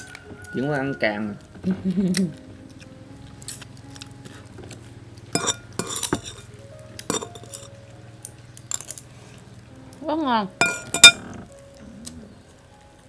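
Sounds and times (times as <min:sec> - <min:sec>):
tableware clinking: 0:05.4 - 0:06.5, 0:07.1 - 0:07.7, 0:08.7 - 0:08.9, 0:10.6 - 0:11.4
low steady hum: 0:09.7 - 0:11.4.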